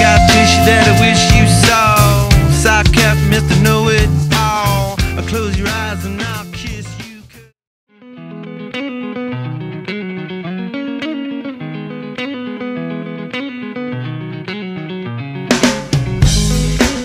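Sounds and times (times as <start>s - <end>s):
picked electric guitar: 0.0s - 7.0s, 7.9s - 17.0s
bass line: 0.0s - 7.5s, 16.0s - 17.0s.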